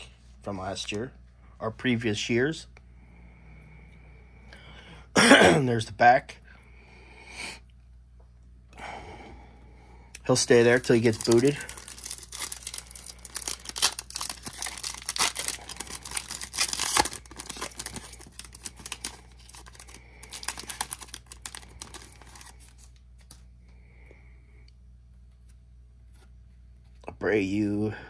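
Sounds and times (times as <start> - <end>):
wrapper tearing and crinkling: 10.4 - 22.9.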